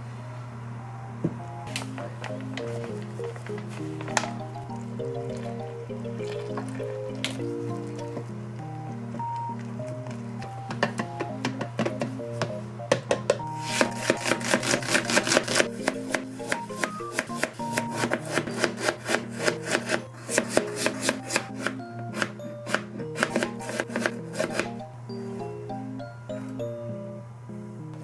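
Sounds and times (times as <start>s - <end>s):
knife strikes on cutting board: 13.2s - 24.7s.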